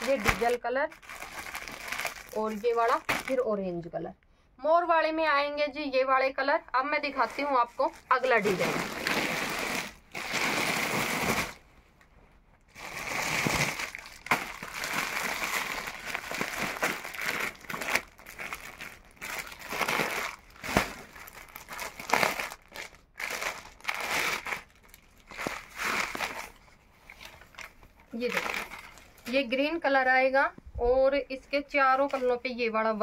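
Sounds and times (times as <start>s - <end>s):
plastic bag crinkling: 0.0s - 3.4s, 7.0s - 11.7s, 12.7s - 29.6s.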